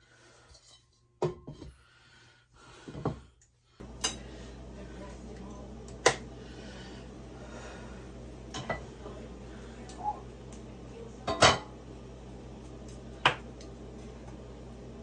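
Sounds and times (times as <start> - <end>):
low hum: 3.8 - 15.0.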